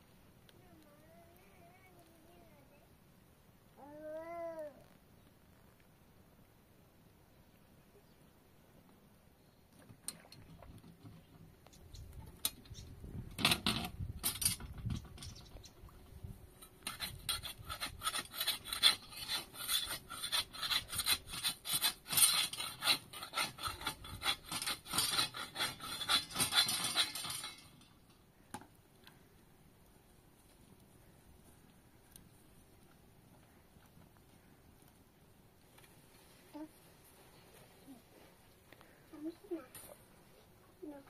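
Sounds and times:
scrapes and knocks: 9.8 - 28.7
hand tool rasping on wood: 16.8 - 27.7.

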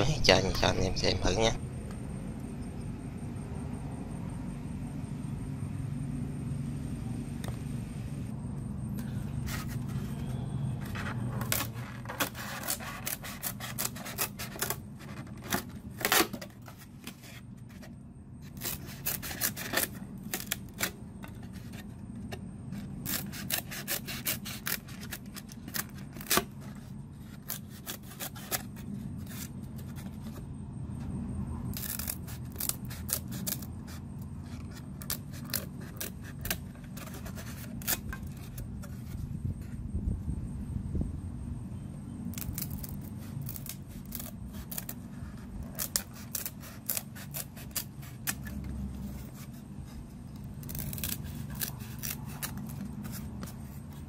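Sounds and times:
low steady hum: 0.0 - 54.0
scissors cutting foam: 9.4 - 30.4, 31.7 - 39.2, 42.3 - 54.0.

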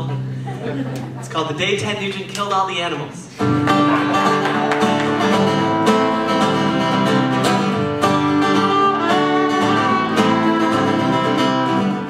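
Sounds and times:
acoustic guitar strumming: 3.4 - 12.0
fiddle melody: 3.8 - 12.0.

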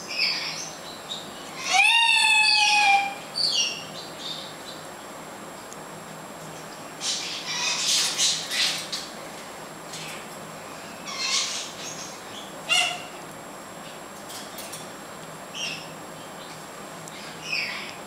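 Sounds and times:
parrot harsh scratchy calls: 7.0 - 8.8, 11.1 - 11.8, 12.7 - 13.1.

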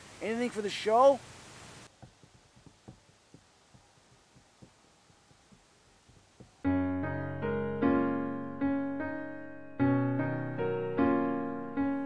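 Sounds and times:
electric piano chords: 6.6 - 12.0.

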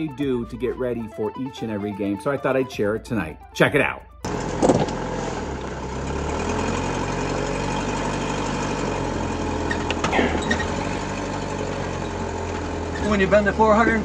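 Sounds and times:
car engine idling: 4.2 - 14.0.

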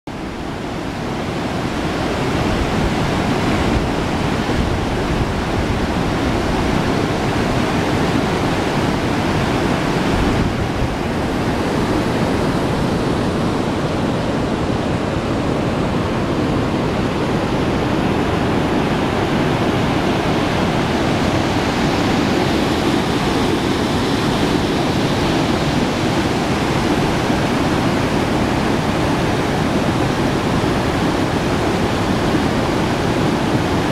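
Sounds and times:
water rushing through dam outflow: 0.1 - 33.9.

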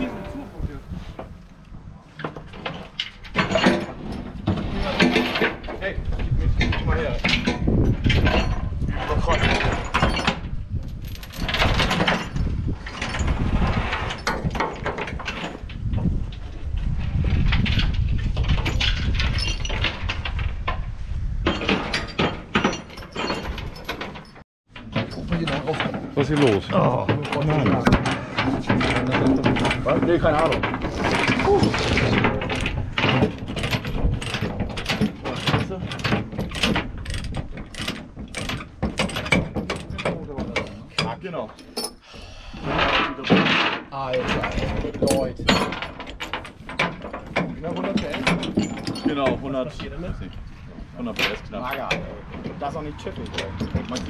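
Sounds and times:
steel chains rattling on metal deck: 2.4 - 16.4, 17.4 - 42.0, 42.6 - 54.0
ratchet chain binder clicking: 36.4 - 39.9.

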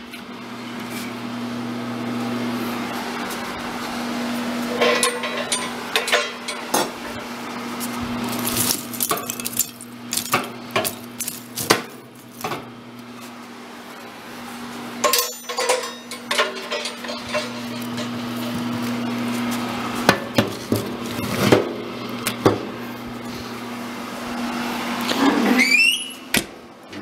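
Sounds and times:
fireplace tools clanking: 4.7 - 7.2, 8.2 - 12.7, 15.0 - 19.1.

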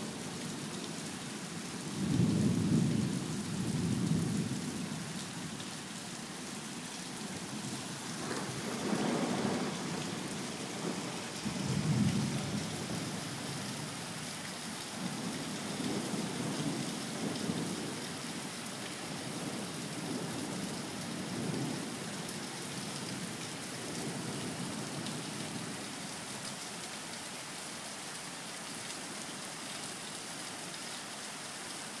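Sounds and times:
steady rain: 0.0 - 32.0
thunder rumbling: 7.6 - 13.3.

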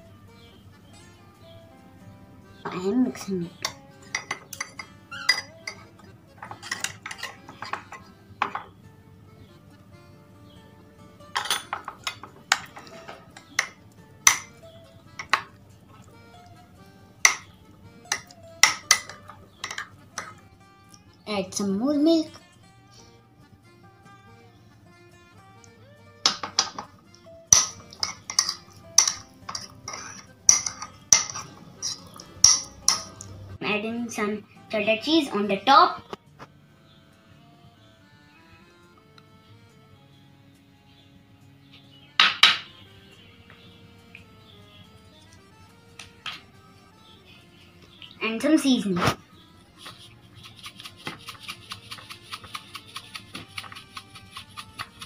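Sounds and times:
faint guitar music: 0.0 - 55.0
metal spoon clinking against mug: 3.6 - 5.8, 6.4 - 8.6, 11.4 - 14.5, 18.1 - 20.4, 27.5 - 33.2.

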